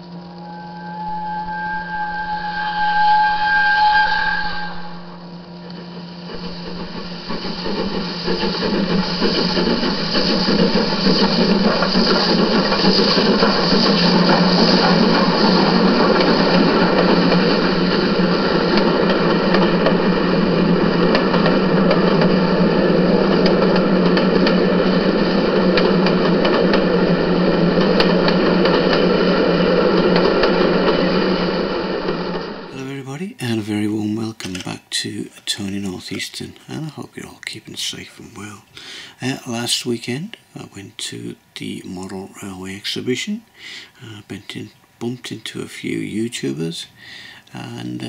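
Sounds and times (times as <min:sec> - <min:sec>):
model train rail noise: 0:00.0 - 0:48.0
model train motor hum: 0:05.2 - 0:22.4.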